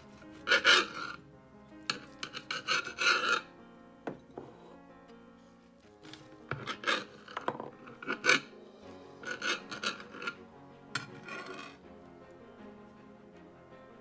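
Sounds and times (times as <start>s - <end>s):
bread knife sawing through crust: 0.0s - 1.2s, 1.9s - 3.5s, 6.1s - 8.5s, 9.2s - 10.4s, 11.0s - 11.8s
quiet background music: 0.0s - 14.0s.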